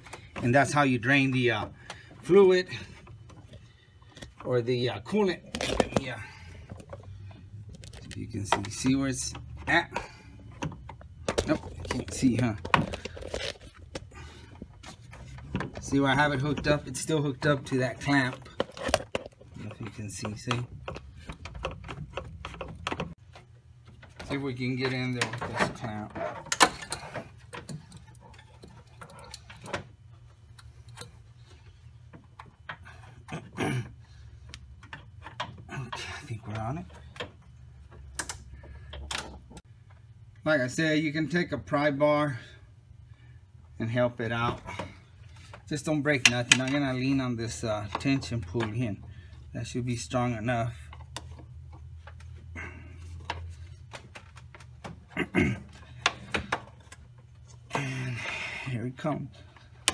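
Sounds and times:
metal clicks and knocks: 14.8s - 29.9s.

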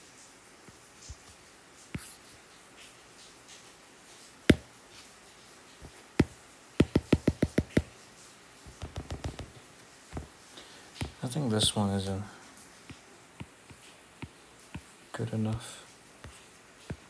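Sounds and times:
stylus tapping on glass screen: 5.8s - 8.0s, 8.7s - 10.3s.

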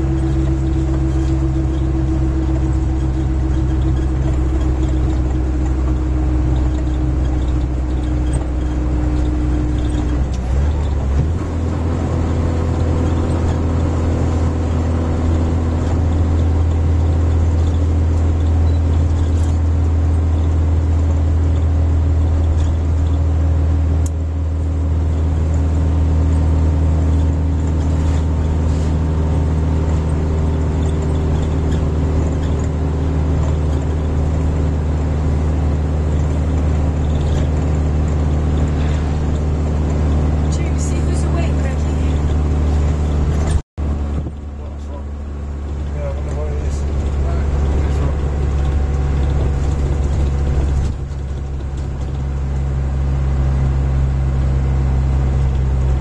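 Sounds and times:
van engine and tyre drone: 0.0s - 56.0s.

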